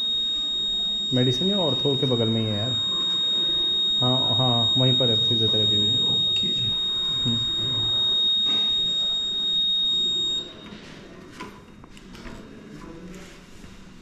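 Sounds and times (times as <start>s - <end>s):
high-pitched electronic alarm tone: 0.0s - 10.7s.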